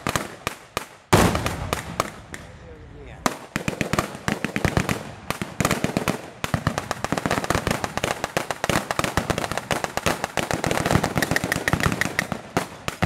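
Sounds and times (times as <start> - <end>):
rapid machine gun fire: 7.4 - 13.0.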